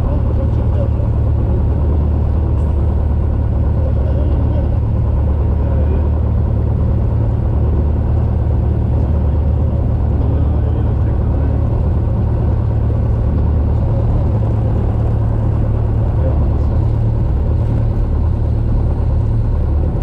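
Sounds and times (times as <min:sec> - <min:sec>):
airplane engine droning: 0:00.0 - 0:20.0.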